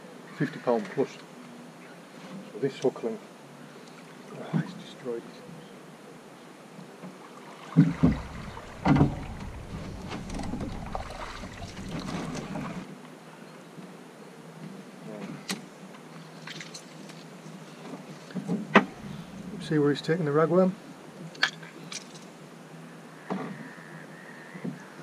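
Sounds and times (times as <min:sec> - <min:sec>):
heavy thumps in boat: 0:07.8 - 0:12.8
deep rumble: 0:07.9 - 0:12.9, 0:18.8 - 0:19.7.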